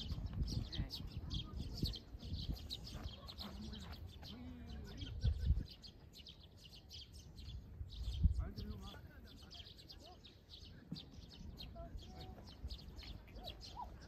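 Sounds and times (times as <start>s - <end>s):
wind rumbling on microphone: 0.0s - 6.2s, 7.1s - 9.0s
small birds chirping: 0.0s - 14.0s.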